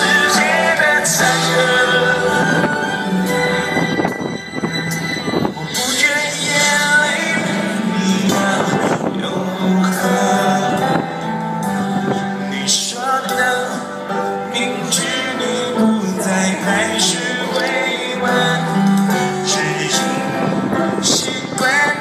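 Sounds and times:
man singing: 0.0s - 4.0s, 5.5s - 22.0s
rock band playing live: 0.0s - 22.0s.

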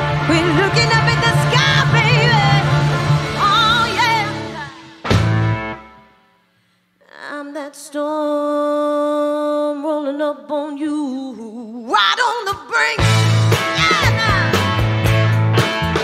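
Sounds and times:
blues-rock band playing live: 0.9s - 5.9s, 13.0s - 16.0s
woman singing unaccompanied: 7.0s - 13.1s.

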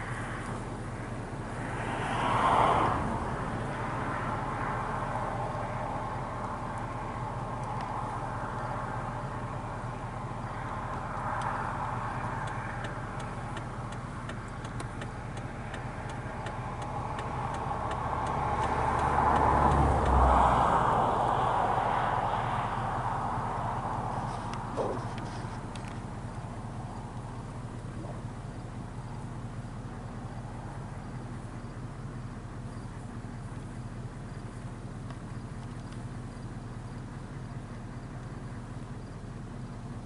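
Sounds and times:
low engine hum: 0.0s - 40.0s
road vehicles passing: 0.0s - 40.0s
faint ticks: 6.4s - 8.8s, 10.6s - 11.6s, 12.2s - 20.2s, 24.2s - 26.5s, 27.1s - 28.2s, 33.5s - 36.8s.

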